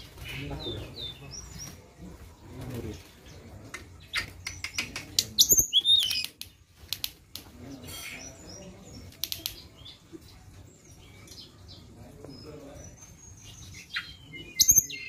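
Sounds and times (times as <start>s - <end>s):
wings fluttering in cage: 0.0s - 7.6s
bird clicking: 4.4s - 7.5s, 9.1s - 9.6s.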